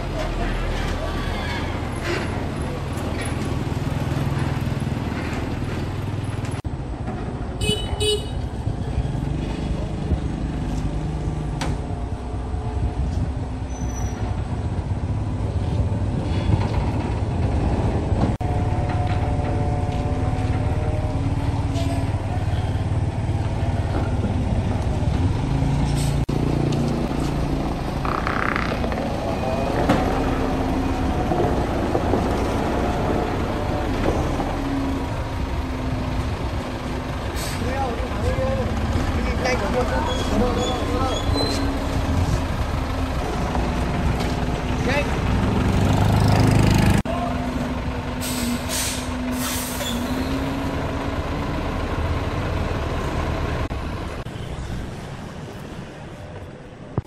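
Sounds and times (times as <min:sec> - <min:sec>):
truck diesel engine running: 0:17.0 - 0:54.2.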